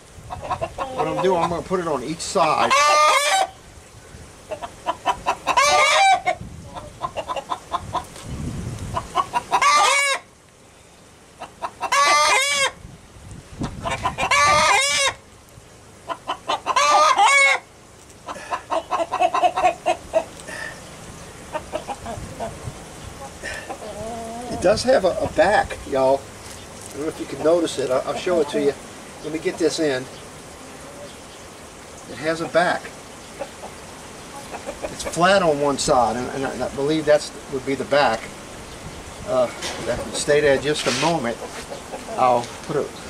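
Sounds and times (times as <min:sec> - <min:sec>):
chickens making short calls: 0:00.3 - 0:01.7, 0:02.4 - 0:03.6, 0:04.4 - 0:10.3, 0:11.4 - 0:12.8, 0:13.6 - 0:15.2, 0:16.0 - 0:31.3, 0:32.1 - 0:36.6, 0:39.2 - 0:42.8.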